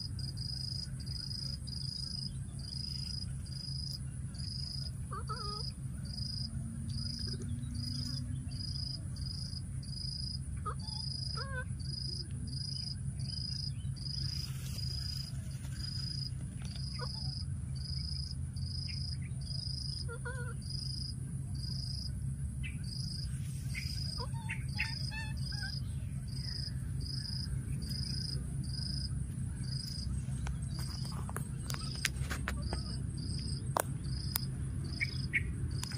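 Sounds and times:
high insect whine: 0.0 - 35.9
insects chirping: 0.0 - 35.9
low background rumble: 0.0 - 35.9
faint pitched calls: 2.8 - 34.3.

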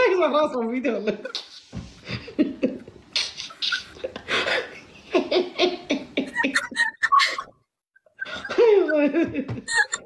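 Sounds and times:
man laughing: 3.4 - 7.6, 8.2 - 10.0
young woman laughing: 3.4 - 10.0.

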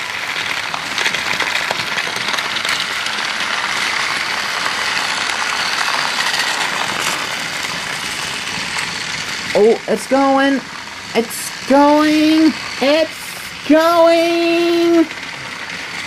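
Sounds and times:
toy train motors whirring: 0.0 - 16.0
wheels rattling on rails: 0.0 - 16.0.

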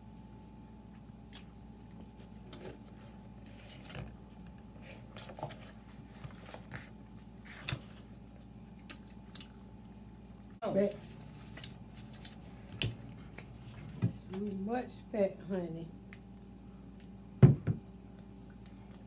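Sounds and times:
faint hum: 0.0 - 19.0
chewing and lip-smacking: 0.4 - 2.6, 6.4 - 10.0, 17.8 - 19.0.

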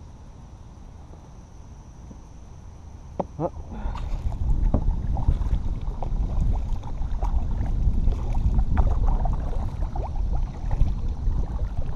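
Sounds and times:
wind on microphone: 3.6 - 11.9
kayak paddle splashing water: 3.7 - 11.9.

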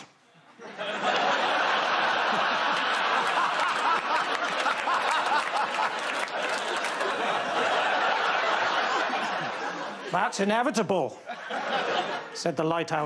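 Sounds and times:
studio audience laughing: 0.5 - 10.5, 11.1 - 12.6.

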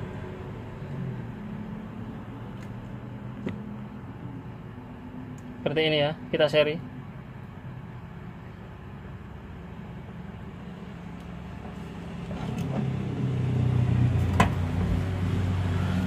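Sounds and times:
steady low hum: 0.0 - 16.0
vehicle engine rumble: 0.0 - 16.0.

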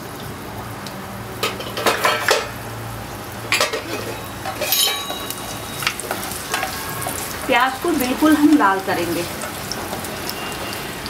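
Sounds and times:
faint frying sizzle: 0.0 - 11.0
metal utensil scraping frying pan: 1.4 - 2.6, 3.5 - 11.0.

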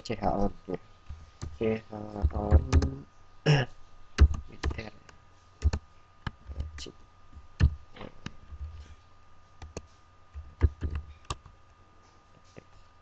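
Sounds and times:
keyboard keys clicking: 2.2 - 2.9, 4.2 - 4.9, 5.6 - 6.9, 9.6 - 11.5.

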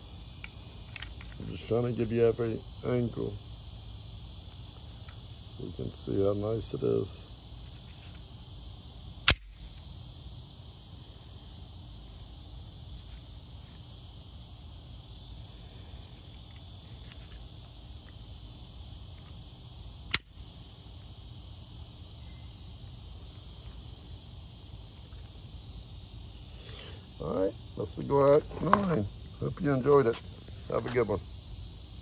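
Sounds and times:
high insect chorus: 0.0 - 32.0
sharp clicks: 20.1 - 20.3.

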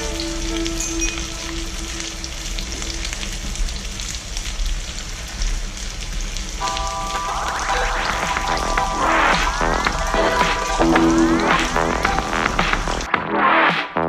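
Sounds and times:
background music: 0.0 - 3.4, 6.6 - 14.0.

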